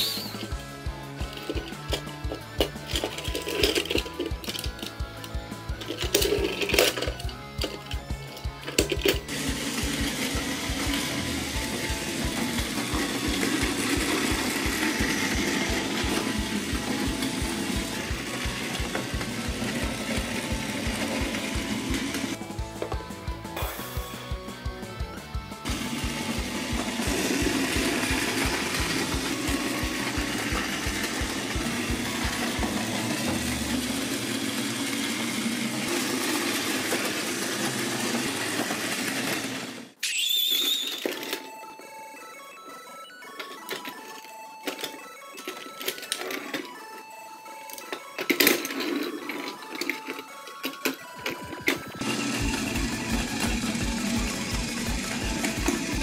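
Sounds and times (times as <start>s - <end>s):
toy train motor whirring: 0.0s - 22.4s, 25.6s - 56.0s.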